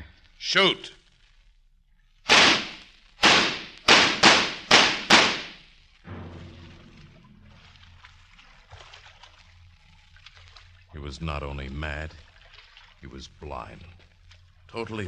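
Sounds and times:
low steady hum: 0.0 - 15.0
gunshots: 2.3 - 6.7.

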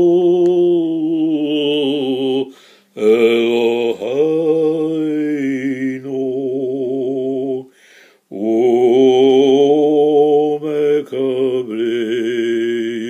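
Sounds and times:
man chanting a prayer: 0.0 - 7.7.

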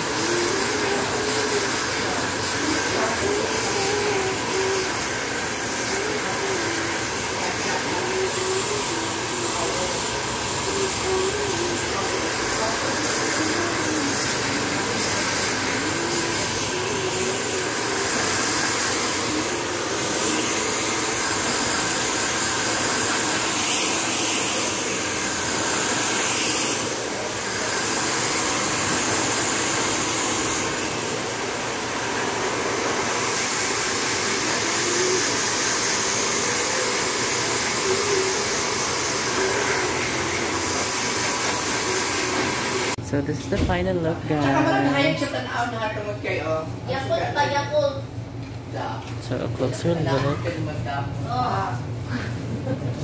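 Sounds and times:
hair dryer blowing: 0.0 - 43.0.

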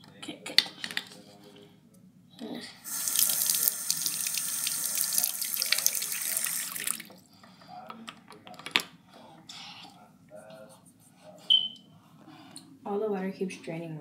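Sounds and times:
faucet water splashing into sink: 2.9 - 7.1.

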